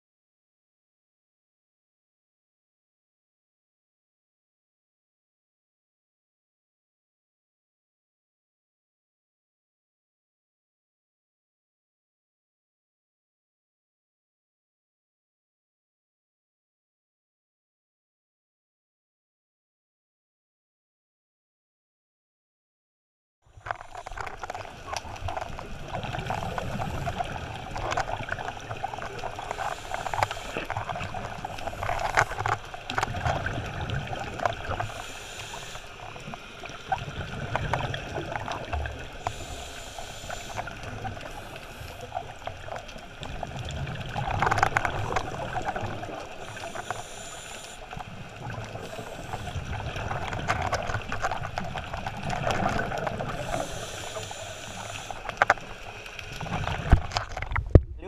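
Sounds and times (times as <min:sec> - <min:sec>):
regulator breathing gurgle: 0:23.6 - 0:36.4, 0:37.7 - 0:42.6, 0:44.6 - 0:51.1, 0:52.5 - 0:55.6.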